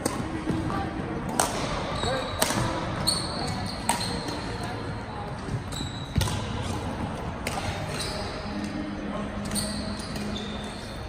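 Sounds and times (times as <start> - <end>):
racket striking shuttlecock: 1.3 - 2.8, 3.5 - 4.4, 6.1 - 6.8
sneakers squeaking on court floor: 1.6 - 8.8, 9.4 - 11.0.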